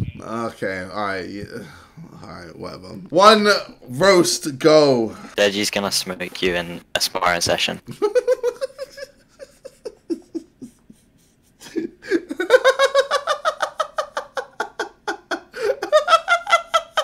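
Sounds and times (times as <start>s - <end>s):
man laughing: 7.9s - 17.0s.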